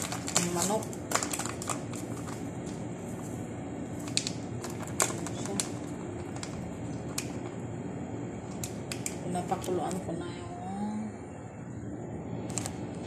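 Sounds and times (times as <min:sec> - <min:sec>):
plastic packet crinkling: 0:00.0 - 0:03.2, 0:03.9 - 0:07.6.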